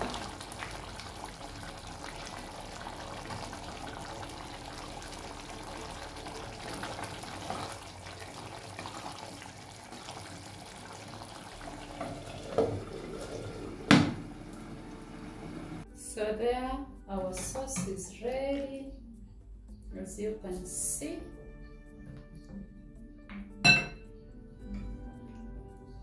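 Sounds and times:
glass lid knock on pot: 23.6s - 24.0s.

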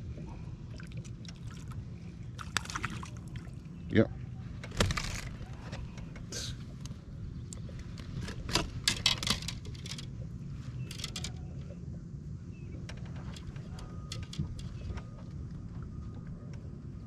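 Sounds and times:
steady low rumble: 0.0s - 17.0s
clicks and light rattles: 4.6s - 10.2s, 10.8s - 11.7s, 12.8s - 15.2s.

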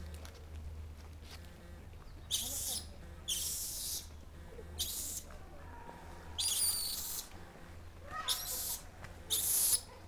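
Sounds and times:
monkeys chirping: 2.2s - 5.3s, 6.2s - 10.0s.

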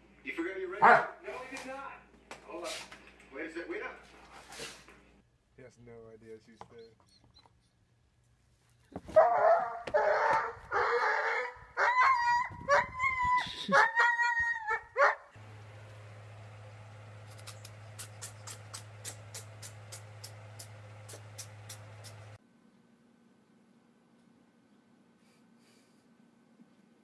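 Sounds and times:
dog barking and yelping: 0.8s - 1.2s, 9.1s - 15.3s.

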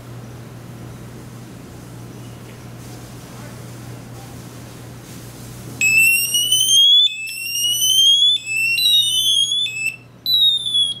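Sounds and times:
electronic alarm siren sweeps: 5.8s - 11.0s.

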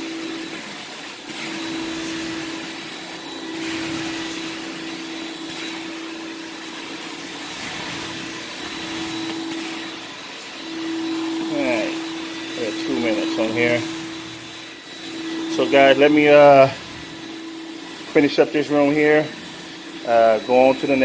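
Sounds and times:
vacuum motor running: 0.0s - 21.0s
suction hissing on carpet: 0.6s - 14.9s.

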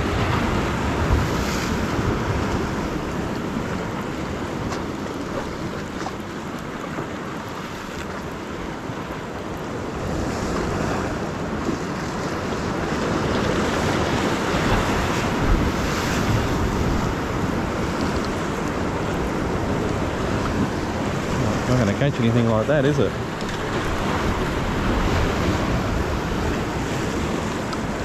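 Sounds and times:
surf washing against rocks: 0.0s - 28.0s
wind buffeting microphone: 9.6s - 28.0s.

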